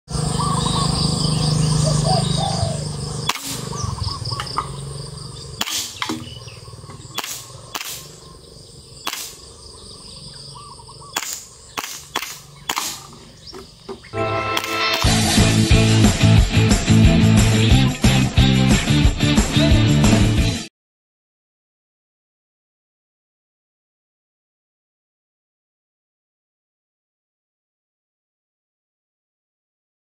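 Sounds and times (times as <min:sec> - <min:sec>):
steady low hum: 0:00.1 - 0:14.1
birds chirping: 0:00.1 - 0:15.9
airsoft pistol shots: 0:03.2 - 0:03.8, 0:05.6 - 0:06.4, 0:07.0 - 0:08.2, 0:09.0 - 0:09.5, 0:11.1 - 0:13.2.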